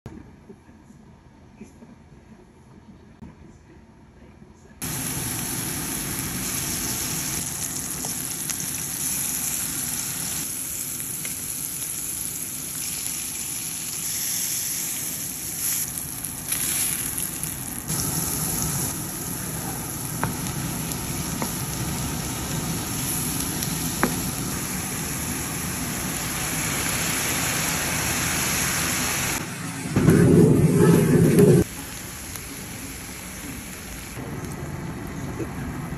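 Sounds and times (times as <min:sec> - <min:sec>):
food sizzling in frying pan: 0:04.8 - 0:29.4, 0:30.8 - 0:34.2
flambe rush: 0:04.8 - 0:34.6.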